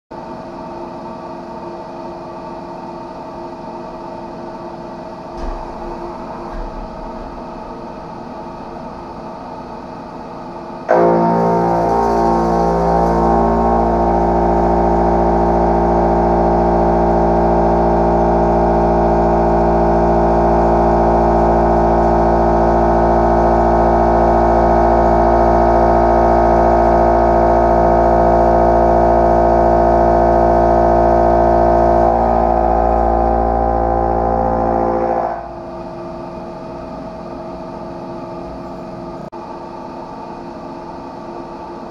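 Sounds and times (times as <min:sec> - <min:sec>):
machine humming: 0:04.1 - 0:36.8.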